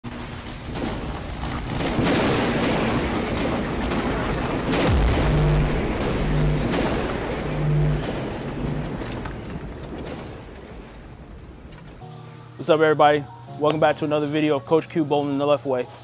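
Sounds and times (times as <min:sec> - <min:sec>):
rushing build-up with crackles: 0:00.0 - 0:12.0
deep boom: 0:01.9 - 0:10.6
low bass note pulsing: 0:04.9 - 0:09.4
music: 0:05.3 - 0:08.8, 0:12.0 - 0:16.0.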